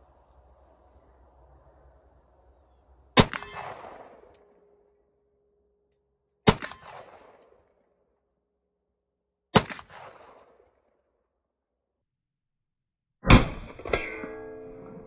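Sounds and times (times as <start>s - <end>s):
steel ringing: 14.0s - 15.0s.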